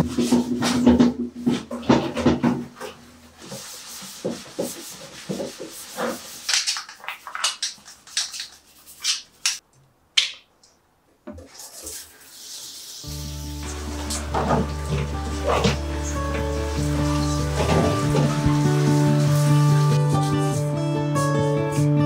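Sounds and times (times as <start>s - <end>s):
brush scrubbing plastic bin: 0.0s - 9.0s, 11.4s - 20.6s
water spraying from shower head: 3.4s - 9.6s, 11.5s - 20.6s.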